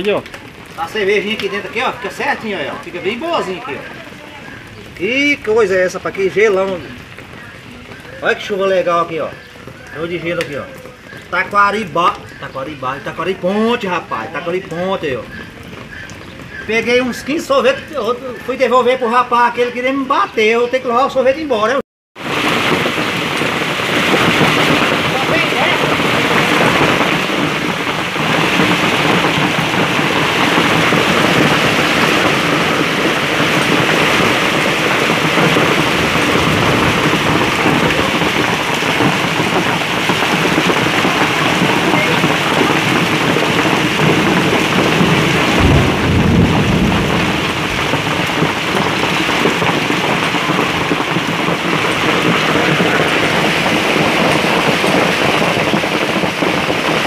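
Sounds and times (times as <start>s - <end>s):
hail and rain pelting the ground: 0.0s - 57.0s
low rumble: 34.2s - 39.8s, 45.1s - 48.7s.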